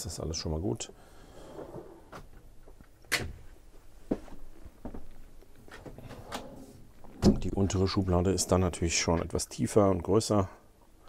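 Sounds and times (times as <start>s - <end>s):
drawer knocks and clicks: 7.2s - 7.6s.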